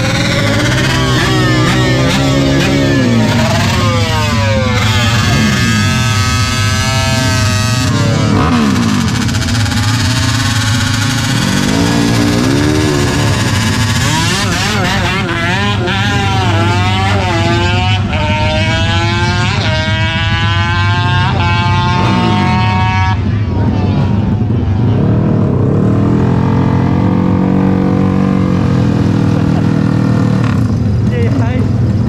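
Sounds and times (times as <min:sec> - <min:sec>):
motorcycle engine idling and blipped: 0:00.0 - 0:25.0
motorcycle revving and accelerating: 0:00.0 - 0:32.0.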